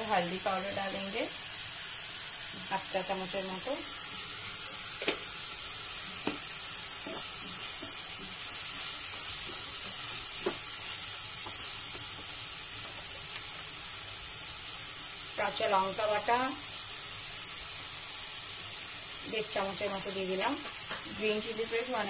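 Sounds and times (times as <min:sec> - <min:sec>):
paste sizzling in oil: 0:00.0 - 0:22.0.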